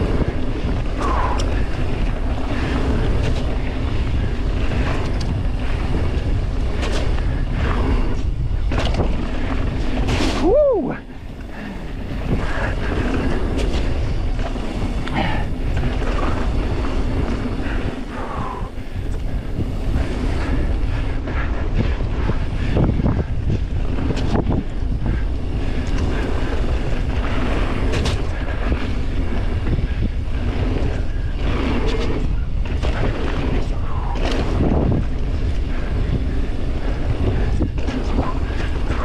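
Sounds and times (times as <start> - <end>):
bike knocks and rattles: 0.0 - 10.6, 19.0 - 39.0
tyres rolling on gravelly dirt: 0.0 - 39.0
wind over microphone: 0.0 - 39.0.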